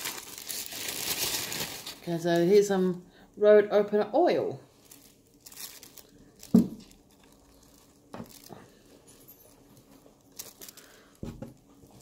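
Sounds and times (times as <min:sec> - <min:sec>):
paper packing material rustling: 0:00.0 - 0:02.7, 0:04.8 - 0:11.2.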